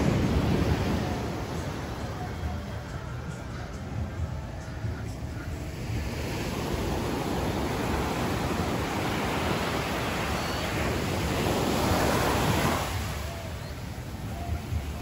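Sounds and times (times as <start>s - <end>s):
waves breaking on beach: 0.0s - 2.9s, 5.2s - 15.0s.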